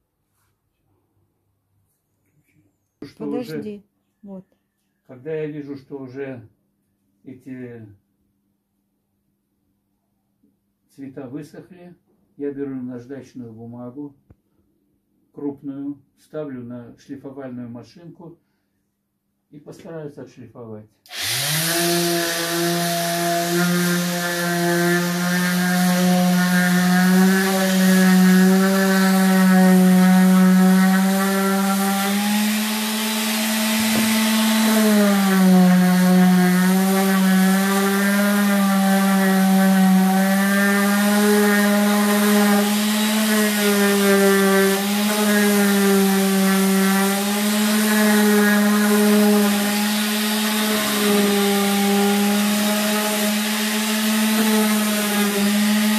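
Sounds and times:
orbital sander motor hum: 0:21.1 - 0:55.9.

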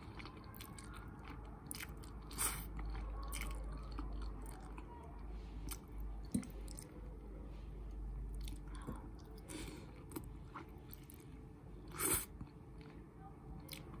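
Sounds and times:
chewing and biting noodles: 0:00.0 - 0:04.8.

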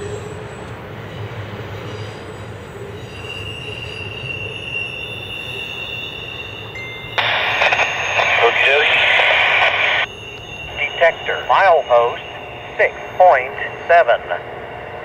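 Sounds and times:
train wheel squeal: 0:00.0 - 0:07.2, 0:10.1 - 0:13.8
freight train rumbling on rails: 0:00.0 - 0:07.4, 0:09.6 - 0:15.0
scanner radio broadcast: 0:07.2 - 0:15.0.

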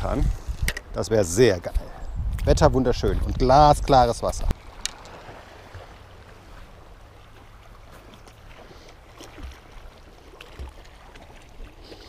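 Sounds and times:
wind rumble on microphone: 0:00.0 - 0:01.0, 0:01.6 - 0:04.6
moving river water: 0:00.0 - 0:12.0.

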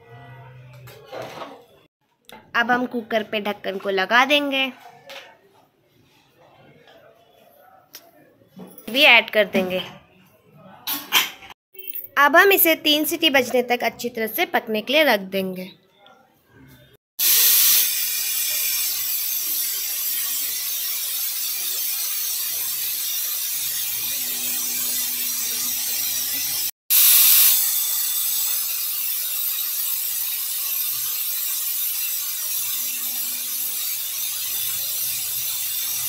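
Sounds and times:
pressure cooker whistling: 0:17.2 - 0:36.0.

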